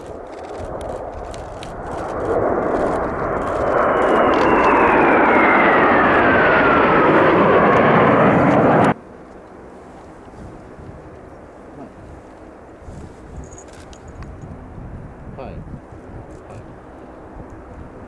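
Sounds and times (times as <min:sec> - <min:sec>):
jet roar passing: 0:00.0 - 0:09.0
turbine whine falling in pitch: 0:00.7 - 0:09.0.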